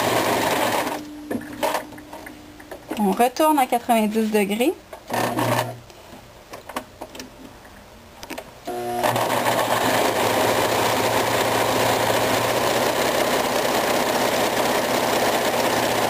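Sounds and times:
sewing machine stitching: 0:00.0 - 0:01.0, 0:05.1 - 0:05.8, 0:08.7 - 0:16.0.

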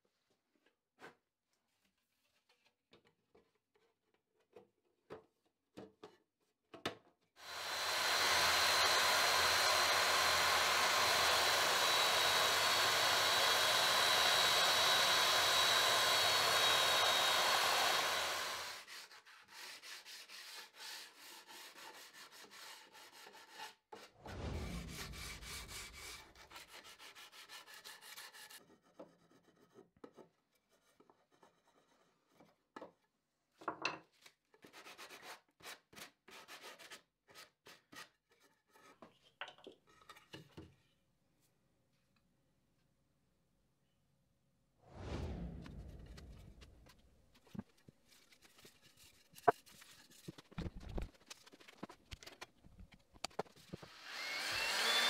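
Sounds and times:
electric belt sander running: 0:07.4 - 0:18.8, 0:53.9 - 0:55.0
hand sanding wood: 0:07.6 - 0:23.8, 0:24.9 - 0:28.6, 0:47.5 - 0:50.6.

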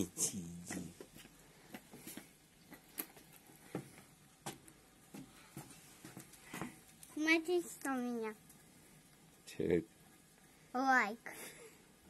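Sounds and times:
footsteps on wooden deck: 0:03.7 - 0:06.8.

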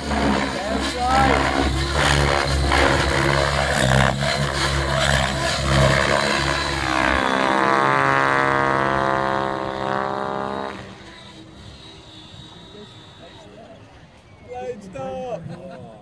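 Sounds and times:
rc helicopter rotor and motor: 0:00.0 - 0:14.4.

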